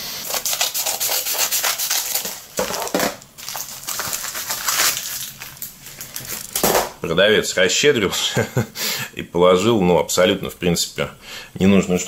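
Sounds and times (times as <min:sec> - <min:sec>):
paper mailer crinkling: 0:00.3 - 0:07.0
plastic bag rustling: 0:00.3 - 0:07.0.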